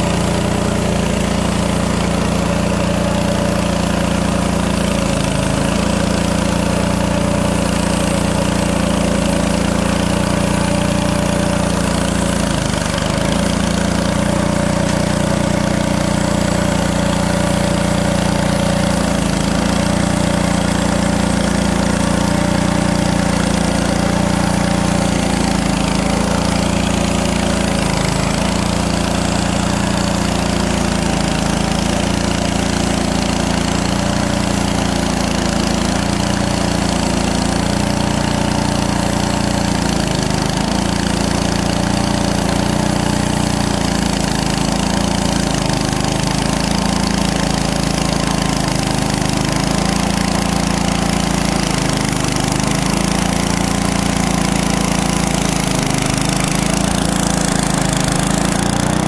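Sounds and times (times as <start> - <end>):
band blade cutting log: 0.0 - 59.0
sawmill gasoline engine running: 0.0 - 59.0.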